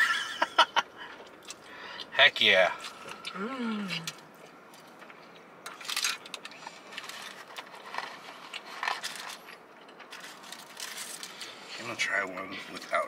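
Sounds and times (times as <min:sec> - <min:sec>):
paper wrappers crinkling: 0:10.1 - 0:11.6.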